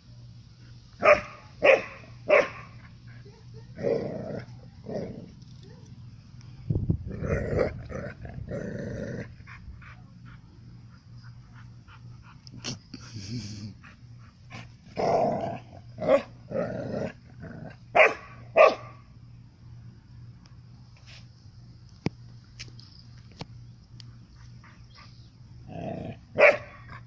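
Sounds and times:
puppies barking: 26.4s - 26.8s.

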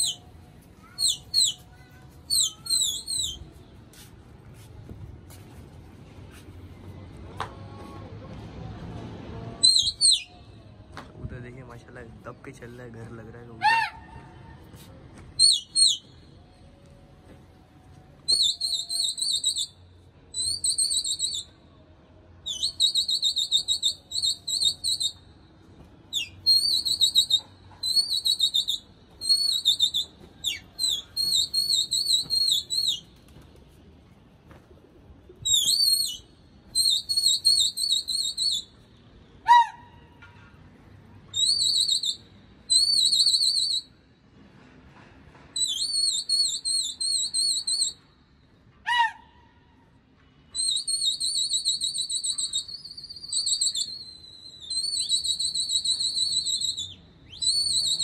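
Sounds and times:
shrill warbling whistle blasts: 18.3s - 19.7s, 22.4s - 25.2s, 26.1s - 33.0s, 35.4s - 38.8s, 41.3s - 43.9s, 45.6s - 48.1s, 50.5s - 58.0s.

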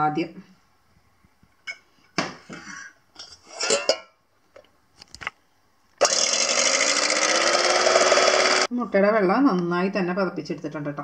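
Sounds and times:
electric hand mixer running: 6.0s - 8.7s.

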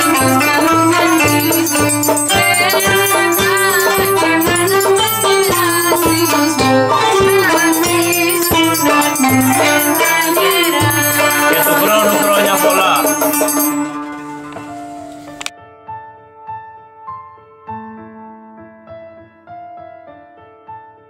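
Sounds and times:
triangle ringing: 0.0s - 14.8s
zither clarinet and drum folk music: 0.0s - 15.5s.

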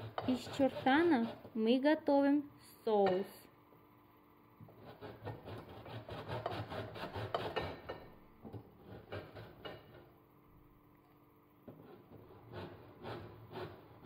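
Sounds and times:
cheese rasping on metal grater: 0.0s - 1.5s, 4.8s - 7.8s, 11.8s - 14.0s.

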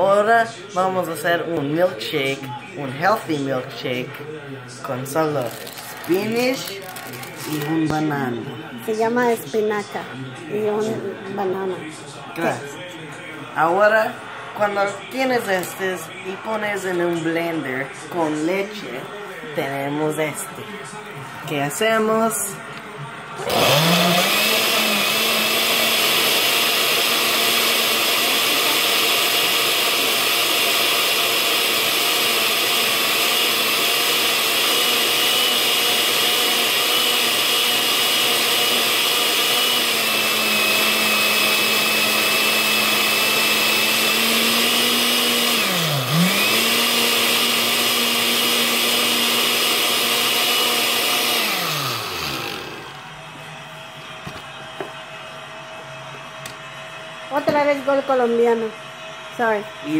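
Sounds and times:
blender motor running: 5.1s - 8.0s, 23.4s - 53.1s.

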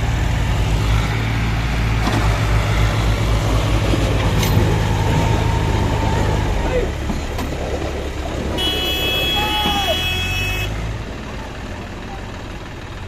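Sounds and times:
tractor diesel engine rumbling: 0.0s - 13.0s
water splashing around wheels: 0.0s - 13.0s.

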